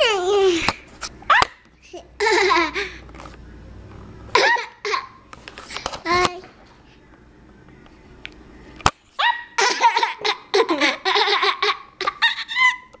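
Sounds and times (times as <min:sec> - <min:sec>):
toddler girl laughing: 0:01.3 - 0:03.0, 0:04.3 - 0:05.2, 0:09.2 - 0:13.0.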